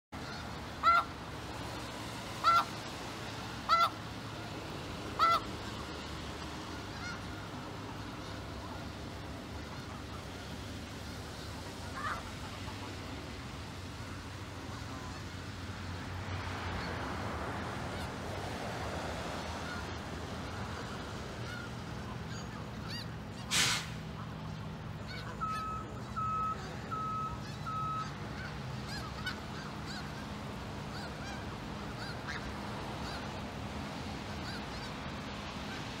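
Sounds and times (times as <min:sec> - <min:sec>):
geese honking: 0:00.2 - 0:06.0, 0:06.6 - 0:13.2, 0:14.1 - 0:15.3, 0:19.6 - 0:23.6, 0:24.2 - 0:35.0
short beeps: 0:25.4 - 0:28.1.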